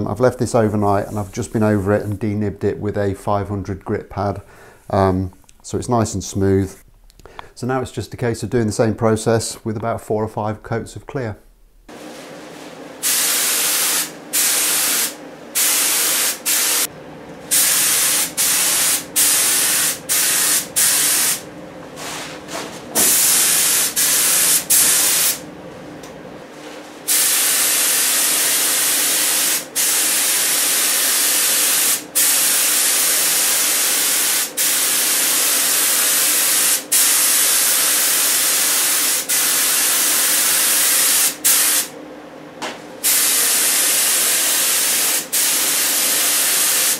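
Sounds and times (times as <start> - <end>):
spray gun hissing: 13.0 - 16.9, 17.5 - 21.4, 23.0 - 25.4, 27.1 - 41.9, 43.0 - 46.9.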